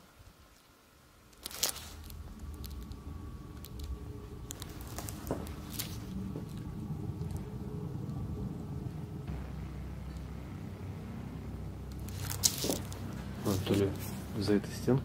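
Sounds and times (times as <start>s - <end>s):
low steady hum: 0.0s - 15.0s
faint clicks and creaks: 0.5s - 10.8s.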